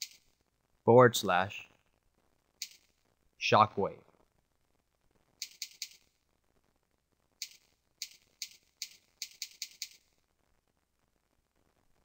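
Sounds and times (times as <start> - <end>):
keyboard typing: 0.0 - 0.3, 2.6 - 2.9, 5.4 - 6.1, 7.4 - 10.1.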